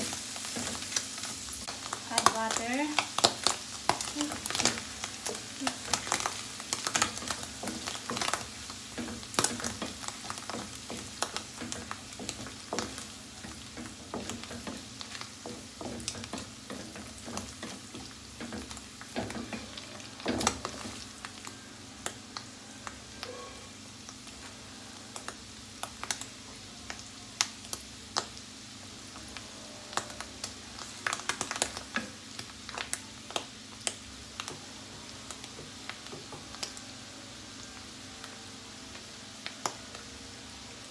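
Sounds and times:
mushrooms sizzling in butter: 0:00.0 - 0:40.9.

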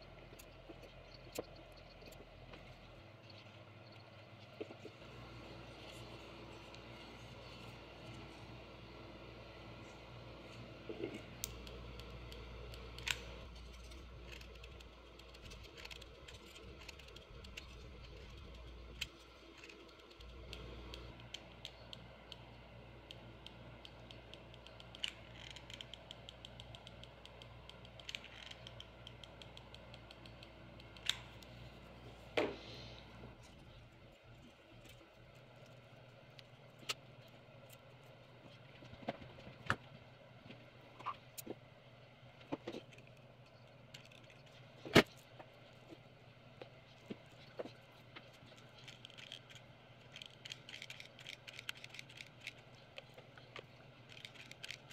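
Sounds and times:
low steady hum: 0:00.0 - 0:54.9
wooden pieces clicking and tapping: 0:23.1 - 0:31.5.

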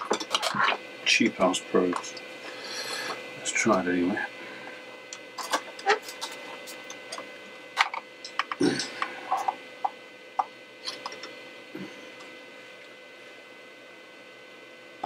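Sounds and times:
faint steady whine: 0:00.0 - 0:15.0.

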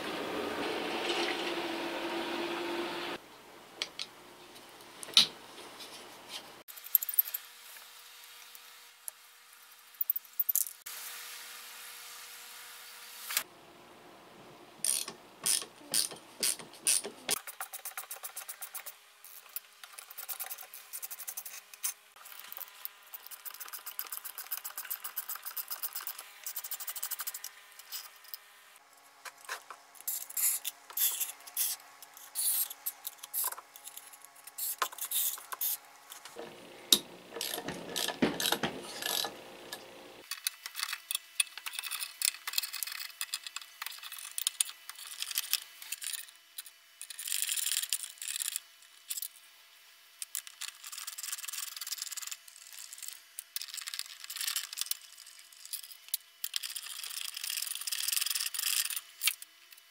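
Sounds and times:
ratchet driver clicking: 0:14.8 - 0:17.1
metal parts clicking: 0:14.8 - 0:28.4, 0:37.3 - 0:39.3, 0:40.2 - 0:49.4, 0:50.2 - 0:59.5.

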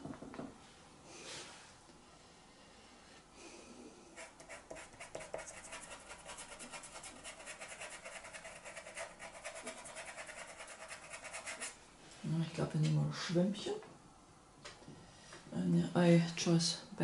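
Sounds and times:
pencil scratching on paper: 0:04.2 - 0:11.7.

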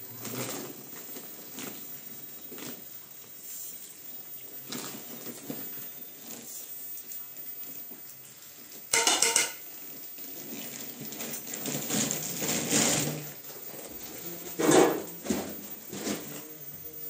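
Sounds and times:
metal cup knocking metal tray: 0:09.0 - 0:09.6.

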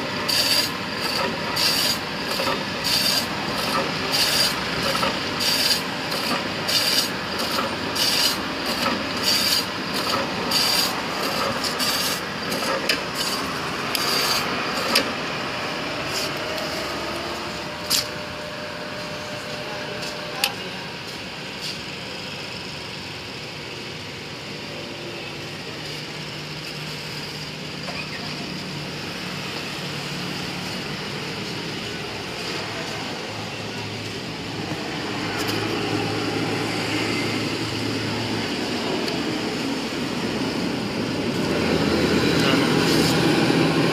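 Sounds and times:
steady machine noise: 0:00.0 - 0:43.9
meat slicer rasping cutting strokes: 0:00.1 - 0:15.2.

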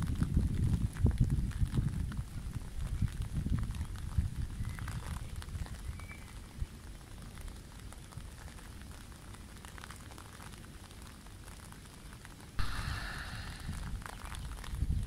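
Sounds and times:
wind on microphone: 0:00.0 - 0:05.9, 0:12.6 - 0:15.0
river rushing: 0:12.6 - 0:14.0
loud hiss: 0:12.6 - 0:14.6.

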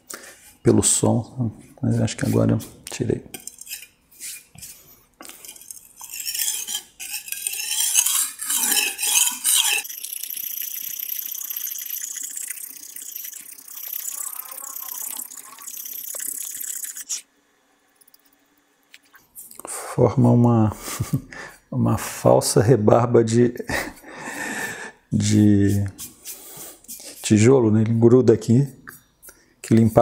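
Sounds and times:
knife blade scraping on brick: 0:03.3 - 0:04.8, 0:05.4 - 0:09.9.

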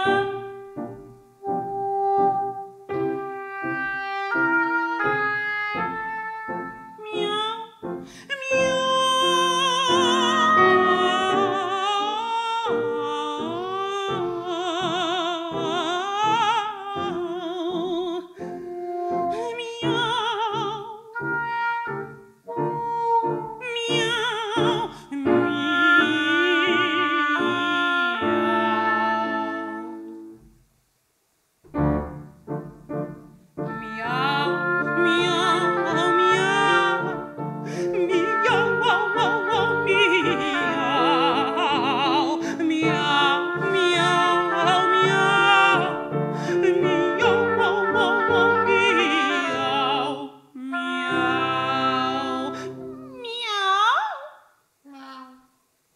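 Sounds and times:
woman singing with vibrato: 0:00.0 - 0:00.6, 0:06.8 - 0:21.7, 0:22.7 - 0:30.0, 0:33.7 - 0:54.4
piano: 0:00.0 - 0:30.7, 0:31.6 - 0:54.2
bassoon and oboe chords: 0:01.4 - 0:07.2, 0:10.0 - 0:11.6, 0:21.2 - 0:23.6, 0:25.9 - 0:30.2, 0:33.6 - 0:41.8, 0:43.2 - 0:50.0.

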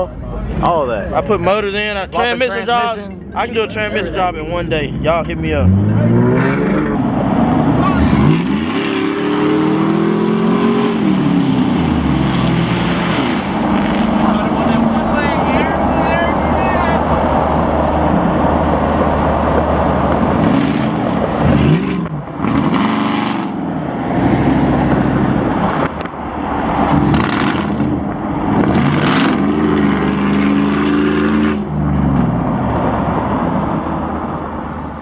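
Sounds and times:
truck engines accelerating: 0:00.0 - 0:35.0
loud rushing noise: 0:04.9 - 0:34.2.

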